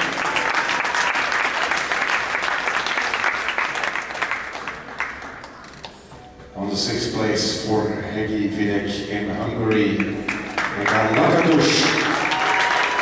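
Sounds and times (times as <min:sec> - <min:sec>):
applause: 0:00.0 - 0:05.6, 0:09.7 - 0:13.0.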